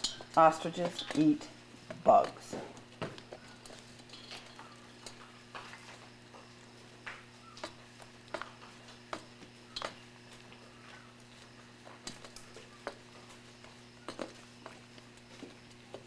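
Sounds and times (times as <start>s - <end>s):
beaks tapping on metal: 0.0s - 5.6s
steady low hum: 0.0s - 16.0s.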